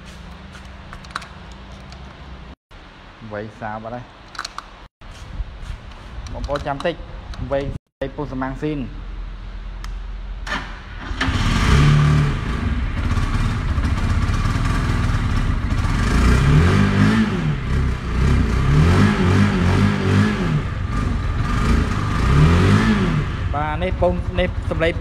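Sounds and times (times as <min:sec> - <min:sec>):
starter clicks: 0:04.2 - 0:04.8
motorcycle engine revving: 0:11.1 - 0:25.0.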